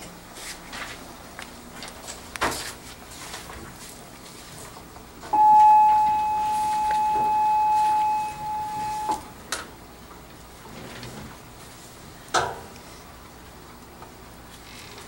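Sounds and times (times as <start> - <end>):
steady electronic beep: 5.4 - 9.2.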